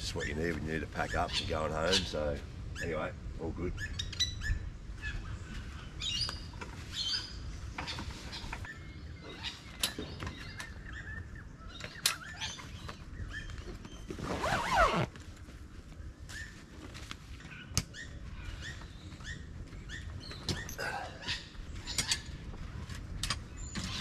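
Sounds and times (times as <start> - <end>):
birds chirping: 0.0 - 15.1, 15.8 - 24.0
camp chair clicks and knocks: 13.6 - 15.2.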